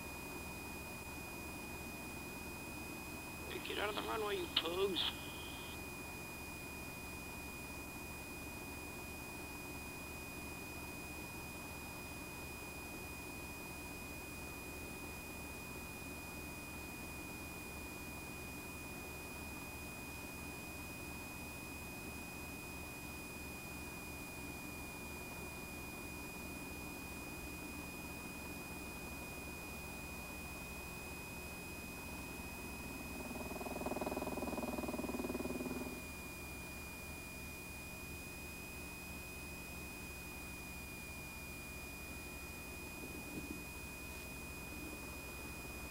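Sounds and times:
faint low hum: 3.4s - 5.8s
thin high whine: 3.5s - 5.8s.

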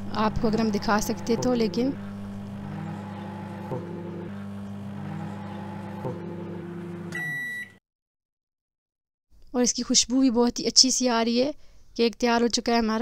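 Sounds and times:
microwave oven humming: 0.0s - 7.8s
high beep: 7.1s - 7.8s.

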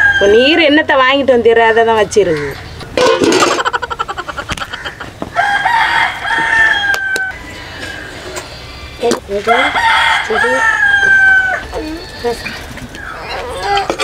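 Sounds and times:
rooster crowing: 0.0s - 0.8s, 4.7s - 13.5s.

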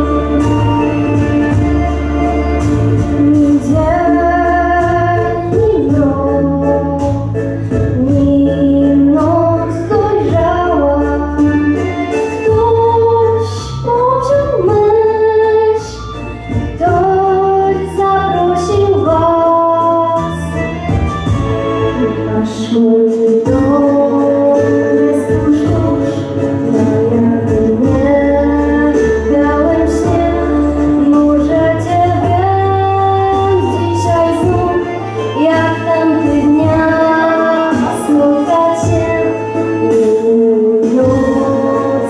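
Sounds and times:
instrumental accompaniment: 0.0s - 42.0s
steady bass line: 0.0s - 42.0s
girl singing through a microphone: 3.0s - 16.0s, 16.7s - 20.5s, 22.0s - 42.0s.

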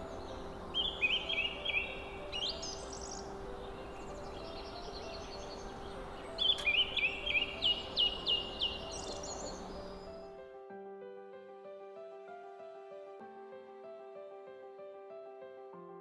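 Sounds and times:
small bird chirping: 0.1s - 10.3s.

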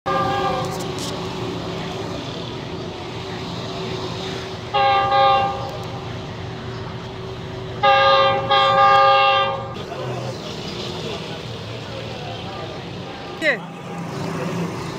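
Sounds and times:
locomotive air horn blasts: 0.0s - 0.9s, 4.7s - 5.7s, 7.8s - 9.8s
street traffic hum: 0.0s - 14.9s.

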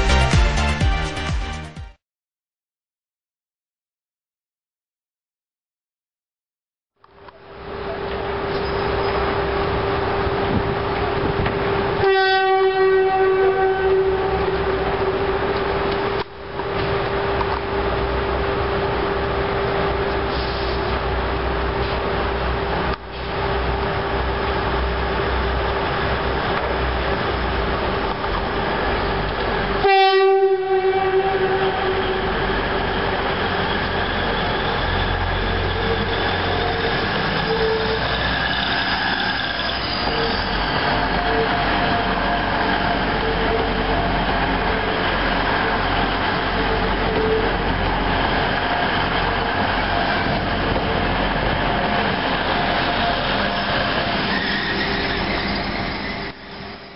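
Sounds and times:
diesel train engines running: 7.1s - 12.1s, 14.0s - 30.0s, 30.6s - 56.9s
train horn blast: 12.0s - 15.4s, 29.8s - 32.5s.

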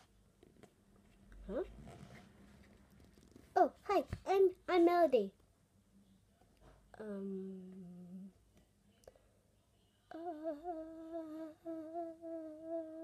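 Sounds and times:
child humming: 7.0s - 8.4s, 10.1s - 13.0s.

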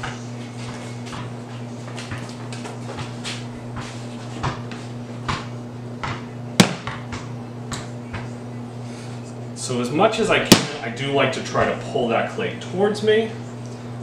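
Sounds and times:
steady low hum: 0.0s - 14.0s
sharp knock: 10.5s - 10.8s.

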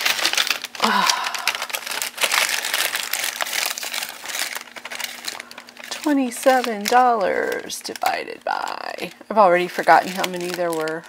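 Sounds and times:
objects rustling and clicking: 0.0s - 8.2s
faint steady hum: 0.0s - 11.0s.

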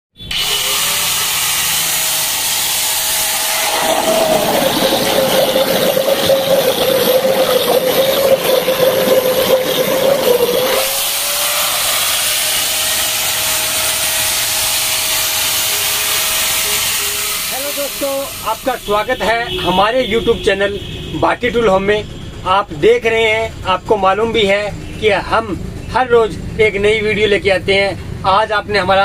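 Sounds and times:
angle grinder whining: 0.2s - 19.1s
water churning and splashing: 3.6s - 10.9s.

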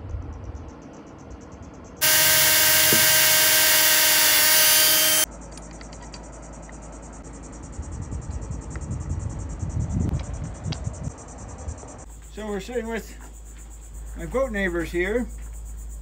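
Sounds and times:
crickets chirping: 0.0s - 16.0s
drill boring through metal: 2.0s - 5.3s.

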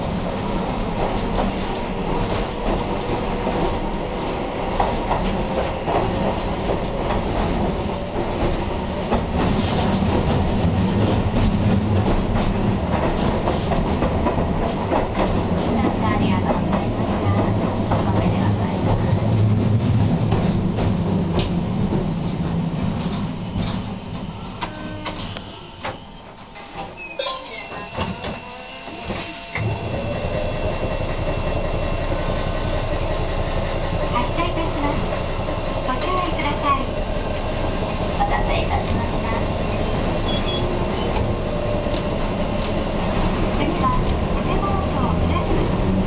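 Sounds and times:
streetcar motor hum: 0.0s - 46.0s
tram wheel squeal: 23.3s - 33.1s, 38.2s - 41.8s
tram wheel clicks: 38.3s - 39.3s, 40.2s - 46.0s.

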